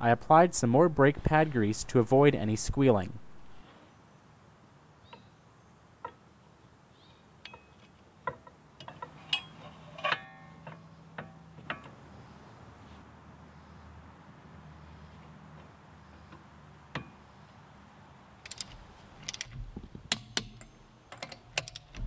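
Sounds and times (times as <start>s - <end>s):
metal brake parts clicking: 18.4s - 22.0s.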